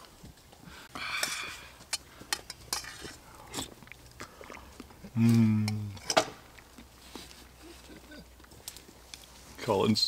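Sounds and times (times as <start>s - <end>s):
man chewing food: 0.0s - 9.5s
man humming mm: 5.1s - 6.0s.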